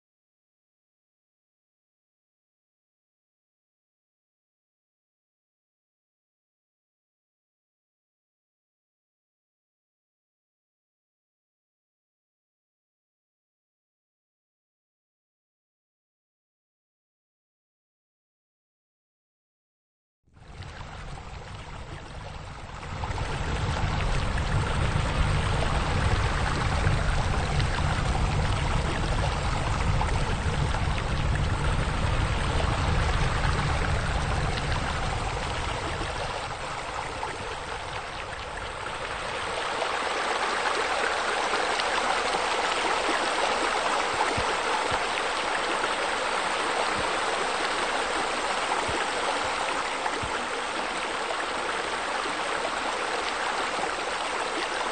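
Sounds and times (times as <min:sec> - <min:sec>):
deep rumble: 0:20.4 - 0:43.0
water splashing and rushing: 0:20.4 - 0:54.9.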